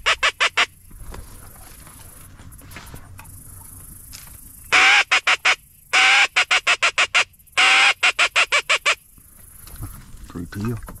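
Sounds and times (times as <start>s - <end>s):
duck call quacks: 0.0s - 0.7s, 4.7s - 9.0s.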